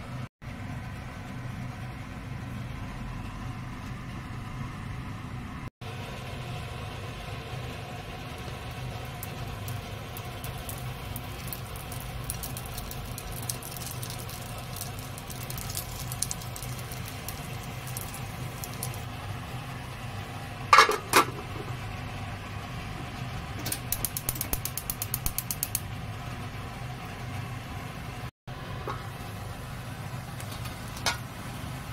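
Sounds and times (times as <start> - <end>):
food frying in a pan: 5.8 - 31.9
metal pan lid clanking: 20.7 - 21.4.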